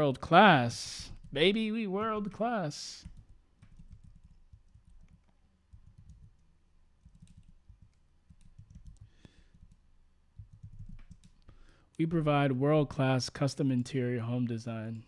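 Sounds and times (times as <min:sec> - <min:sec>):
faint keyboard typing: 0:01.1 - 0:12.0.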